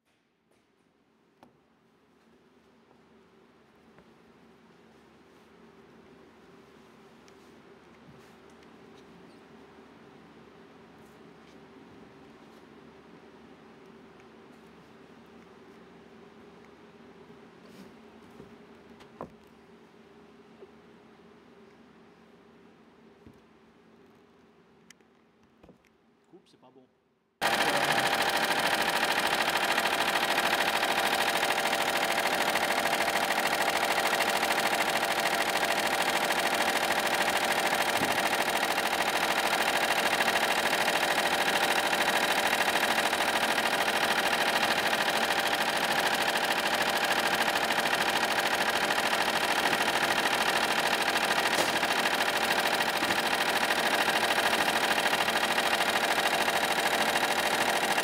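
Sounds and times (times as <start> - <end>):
embroidery machine chatter: 27.4 - 58.0.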